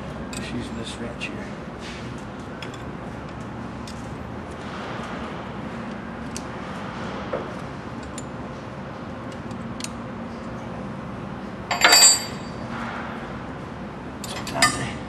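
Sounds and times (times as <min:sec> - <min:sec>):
ringing metal-on-metal clanks: 0:11.7 - 0:12.6, 0:14.2 - 0:15.0.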